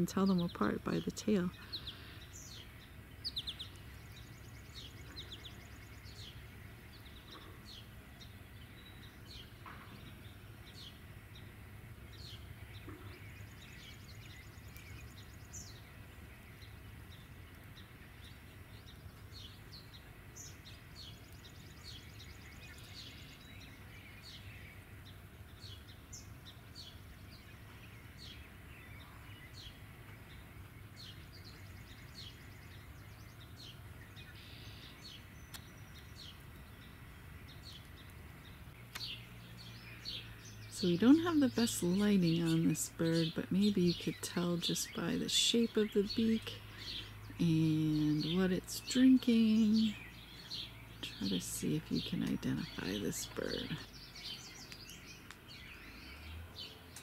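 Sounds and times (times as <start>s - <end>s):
songbirds calling: 0.0s - 57.0s.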